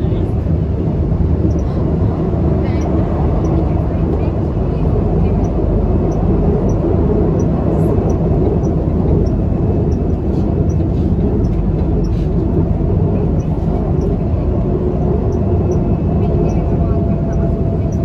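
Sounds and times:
droning hum of running gear: 0.0s - 18.0s
train wheel and track rumble: 0.0s - 18.0s.

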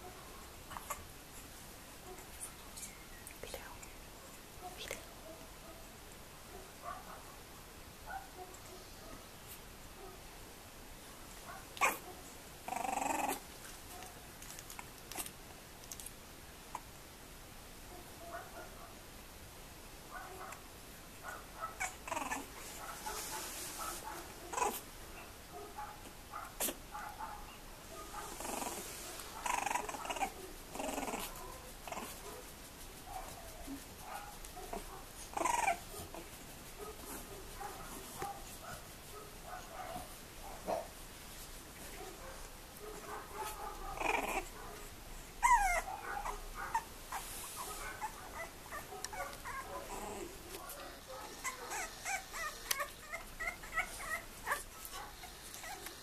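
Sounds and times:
puppy whining: 11.8s - 12.1s, 12.7s - 13.4s, 21.8s - 23.2s, 24.0s - 24.9s, 28.0s - 32.2s, 34.6s - 36.4s, 44.0s - 44.6s, 45.4s - 50.5s, 51.3s - 56.0s
puppies whimpering and squeaking: 24.5s - 24.8s, 28.2s - 31.3s, 35.3s - 36.2s, 45.4s - 50.3s, 51.4s - 56.0s.

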